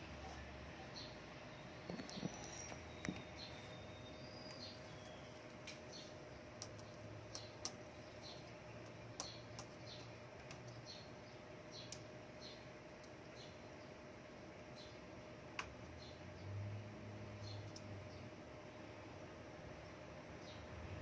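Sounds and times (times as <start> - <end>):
faint steady hum: 0.0 - 21.0
small high ticks: 6.6 - 11.0, 11.8 - 13.5.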